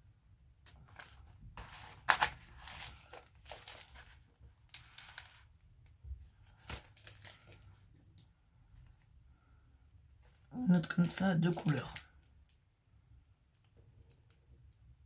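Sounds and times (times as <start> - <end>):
packaging rustling and crackling: 0.7 - 5.6, 6.4 - 8.3, 10.3 - 12.6.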